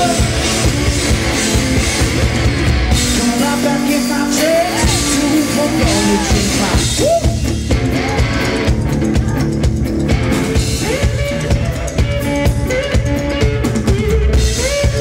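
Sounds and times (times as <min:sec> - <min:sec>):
drum-kit beat: 0:00.0 - 0:15.0
electric guitar riff: 0:00.0 - 0:15.0.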